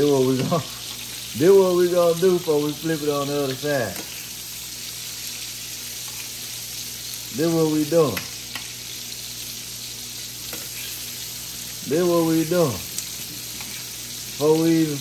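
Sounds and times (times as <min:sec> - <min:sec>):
person's voice: 0:00.0 - 0:04.1, 0:07.3 - 0:08.3, 0:11.8 - 0:13.0, 0:14.4 - 0:15.0
steaks sizzling: 0:00.0 - 0:15.0.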